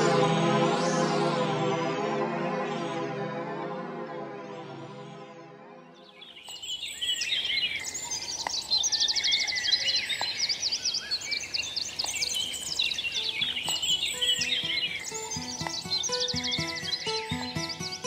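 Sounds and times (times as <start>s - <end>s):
birds chirping and trilling: 6.0s - 18.0s
low musical notes: 12.6s - 18.0s.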